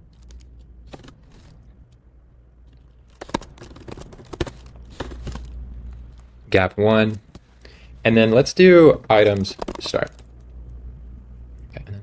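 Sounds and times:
low steady hum: 0.0s - 12.0s
keyboard key clicks: 9.2s - 10.2s.

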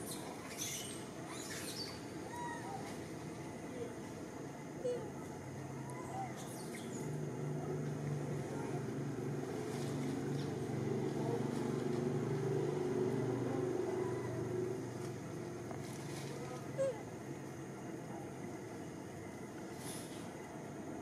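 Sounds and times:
motor engine droning: 7.1s - 16.0s.

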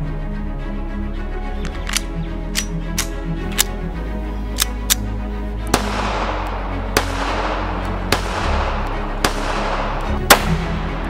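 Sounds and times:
background music: 0.0s - 11.0s
pistol shots with echo: 5.7s - 10.8s.

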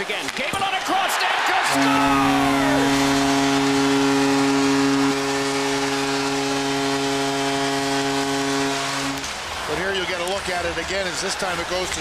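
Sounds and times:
crowd noise: 0.0s - 12.0s
goal horn blast: 1.6s - 9.6s.

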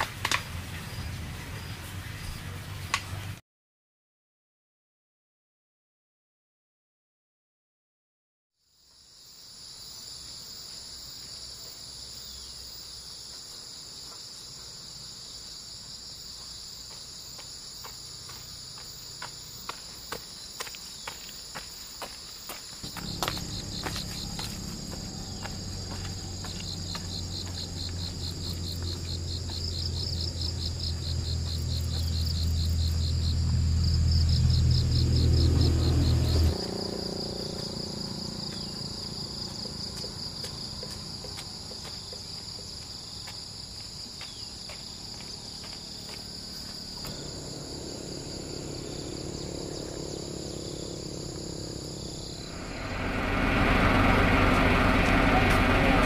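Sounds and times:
high-pitched insect chorus: 8.6s - 56.0s
low rumble: 22.8s - 39.3s, 47.0s - 56.0s
insect pulsing trill: 22.8s - 41.4s, 45.4s - 56.0s.

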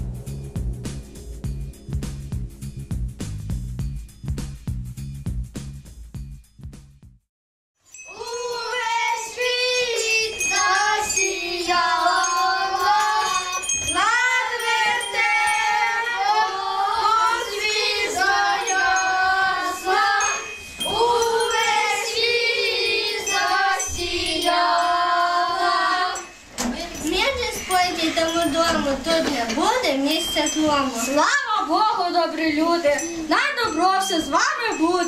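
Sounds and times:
small bell jingling: 7.8s - 35.0s
children singing in unison: 8.1s - 26.8s.

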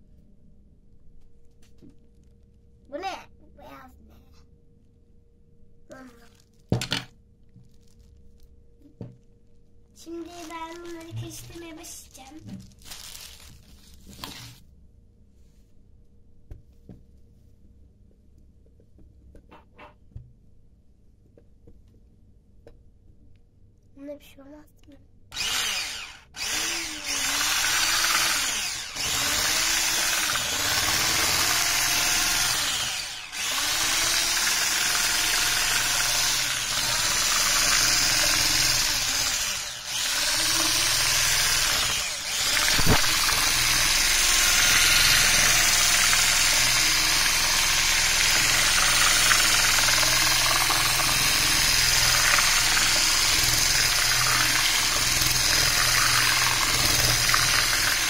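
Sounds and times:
electric hand mixer whisking: 25.4s - 58.0s.

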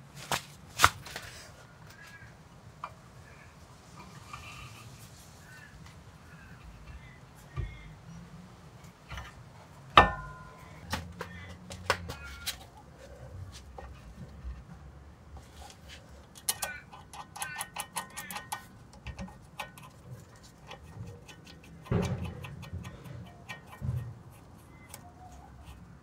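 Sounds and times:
metal clank with ring: 10.0s - 10.6s
light metallic clicks and rattles: 16.2s - 25.0s.

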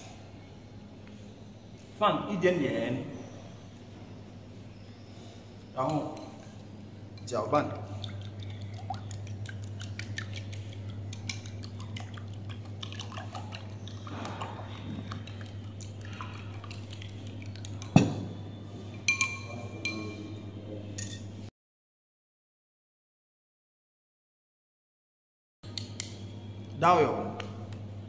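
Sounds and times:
spoon clinking on bowl: 5.8s - 7.3s, 19.0s - 20.4s, 21.0s - 21.3s
spoon beating eggs in a bowl: 7.9s - 18.0s
spoon knocking on bowl: 17.8s - 18.3s.

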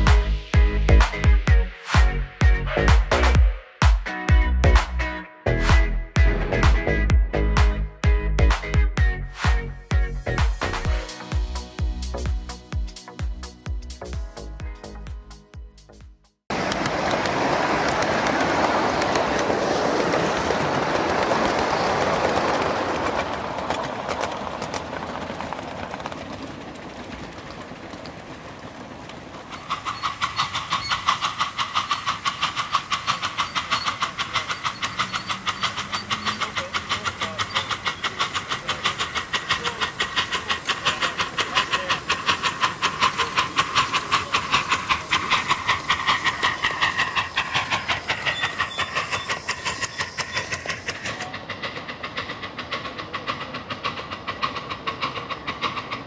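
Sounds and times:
steam locomotive chuffing: 0.0s - 56.0s
rushing hiss: 29.3s - 56.0s.

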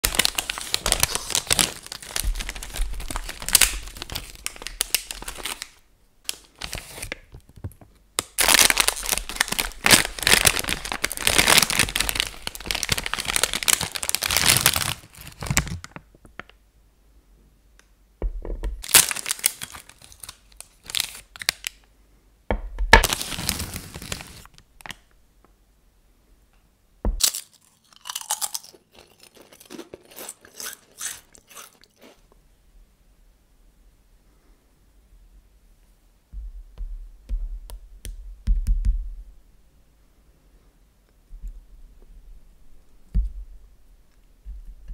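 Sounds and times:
plastic wrappers crinkling and tearing: 0.0s - 7.5s, 8.2s - 16.5s, 18.8s - 21.8s, 22.9s - 25.1s.

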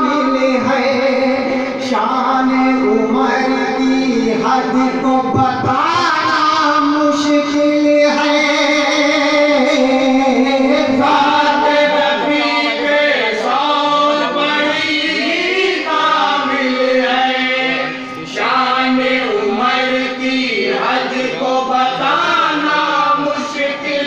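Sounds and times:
men singing together: 0.0s - 24.0s
steady held drone note: 15.0s - 24.0s.

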